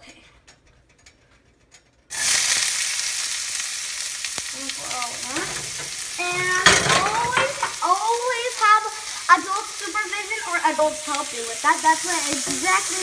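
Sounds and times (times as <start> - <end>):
onions frying sizzle: 2.1 - 13.0.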